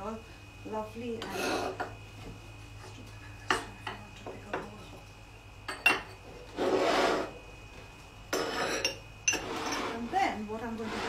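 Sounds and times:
spoon scraping on table: 0:01.2 - 0:01.9, 0:06.5 - 0:07.4, 0:08.3 - 0:10.1
crockery clinking: 0:05.7 - 0:06.2, 0:08.3 - 0:10.0.

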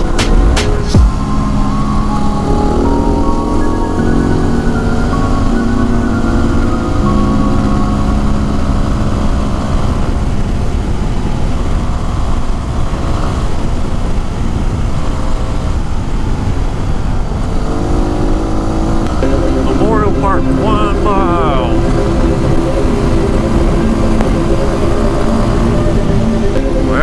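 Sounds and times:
wind noise on microphone: 0:09.7 - 0:19.2.

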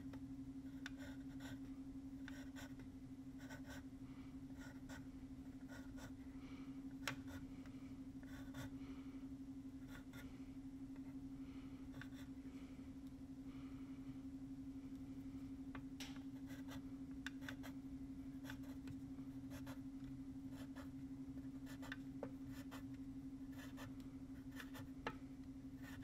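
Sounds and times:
faint low hum: 0:00.0 - 0:26.0
pencil scratching on paper: 0:00.7 - 0:01.6, 0:02.3 - 0:02.8, 0:03.4 - 0:03.8, 0:04.6 - 0:06.1, 0:07.1 - 0:07.5, 0:08.2 - 0:08.8, 0:09.9 - 0:10.3, 0:16.4 - 0:16.8, 0:17.4 - 0:17.8, 0:18.4 - 0:18.8, 0:19.5 - 0:19.8, 0:20.5 - 0:20.9, 0:21.6 - 0:22.8, 0:23.5 - 0:24.9, 0:25.8 - 0:26.0.

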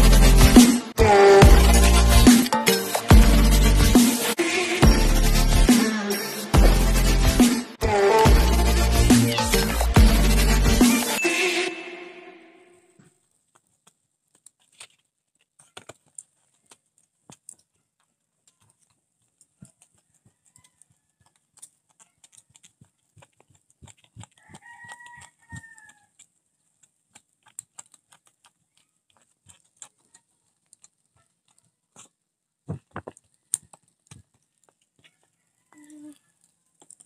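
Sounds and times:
meat crackling on charcoal grill: 0:13.2 - 0:37.0
rooster crowing: 0:20.2 - 0:21.3, 0:24.4 - 0:26.1, 0:35.2 - 0:36.3.

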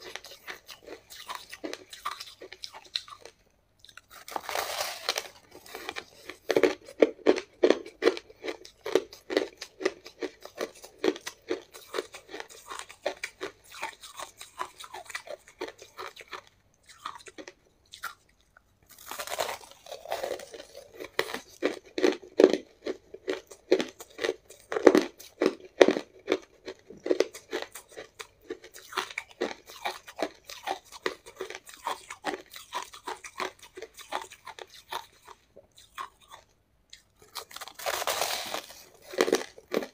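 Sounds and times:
ice crunching while chewed: 0:00.0 - 0:39.9.

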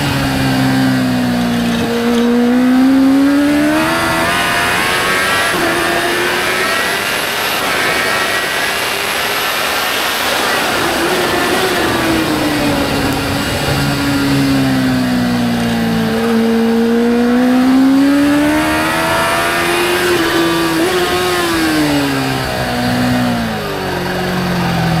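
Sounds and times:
motorcycle engine at speed: 0:00.0 - 0:25.0.

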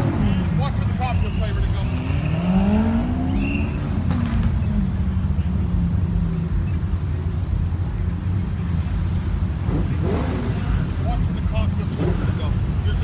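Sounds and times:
car engines rumbling at low speed: 0:00.0 - 0:13.0.

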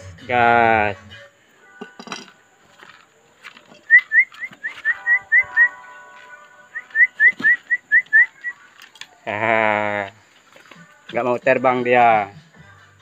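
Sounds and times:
rising whistled chirps: 0:03.8 - 0:06.0, 0:06.6 - 0:08.7.

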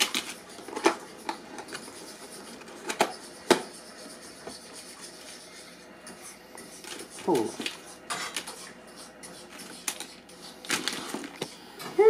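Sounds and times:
plastic packaging rubbing and scraping: 0:06.8 - 0:08.7, 0:09.4 - 0:11.5.

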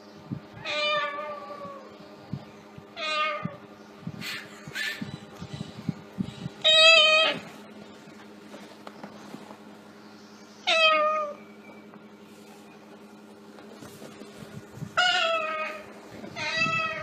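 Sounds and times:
cat meowing: 0:06.6 - 0:07.5, 0:10.7 - 0:11.4, 0:15.0 - 0:17.0.

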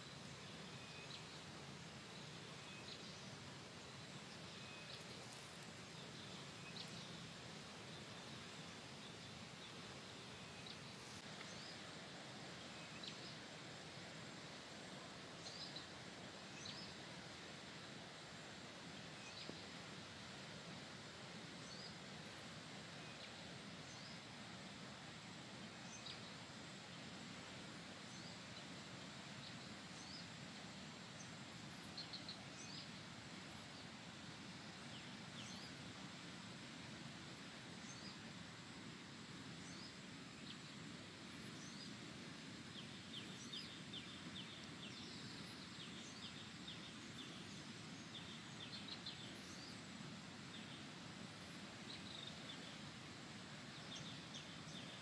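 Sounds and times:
steady low hiss: 0:00.0 - 0:55.0
small birds chirping: 0:42.7 - 0:52.9, 0:53.7 - 0:55.0.

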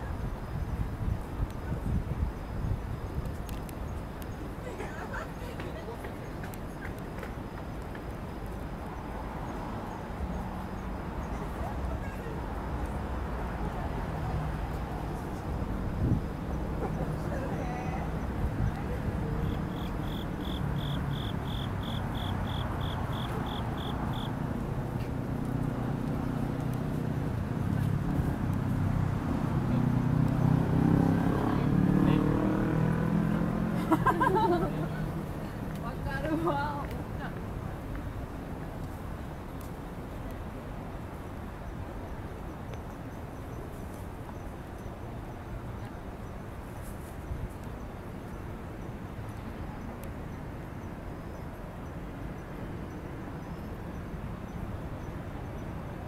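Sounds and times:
low city hum: 0:00.0 - 0:56.0
faint light ticks: 0:25.0 - 0:26.8, 0:42.7 - 0:43.0.

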